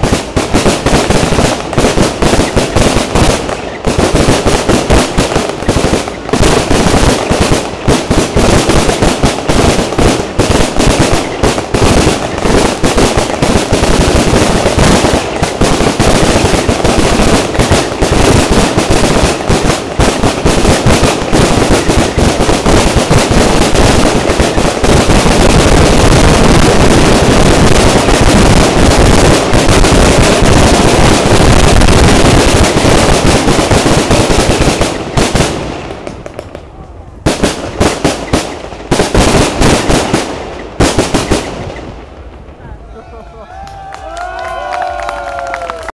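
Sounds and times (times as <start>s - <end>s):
fireworks bangs and crackles: 0.0s - 45.9s.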